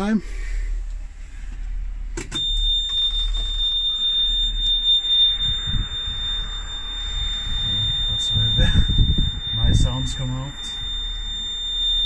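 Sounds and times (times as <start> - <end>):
high-pitched warning buzzer: 2.4 - 12.0
diesel engine rumbling: 4.3 - 11.5.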